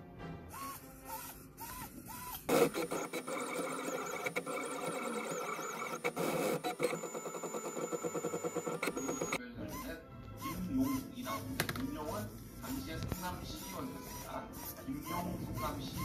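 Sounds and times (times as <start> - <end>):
printer stepper motors whirring: 1.6 - 9.4.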